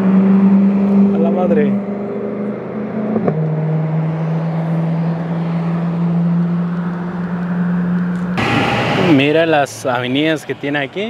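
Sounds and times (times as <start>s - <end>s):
car engine running: 0.7s - 9.5s.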